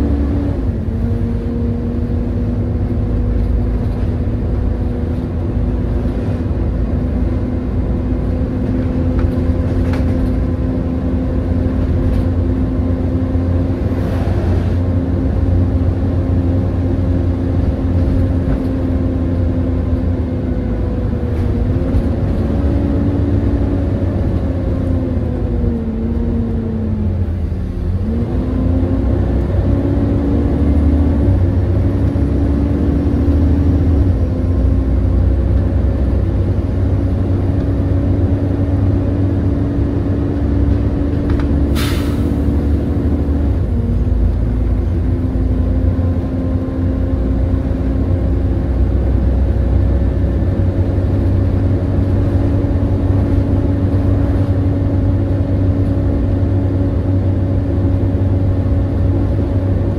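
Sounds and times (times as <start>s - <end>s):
bus diesel engine: 0.0s - 59.9s
sharp air hiss: 41.7s - 42.4s.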